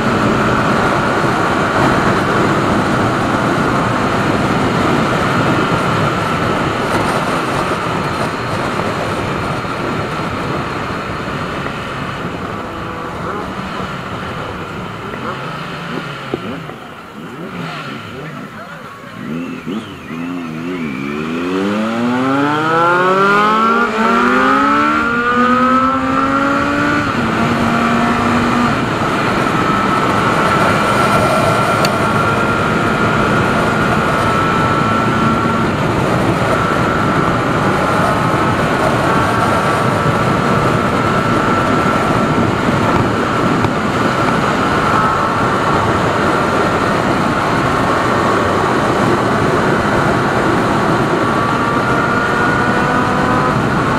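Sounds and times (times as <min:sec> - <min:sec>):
wind noise: 0:00.0 - 0:18.6, 0:19.2 - 0:53.9
motorcycle engine accelerating: 0:00.0 - 0:53.9.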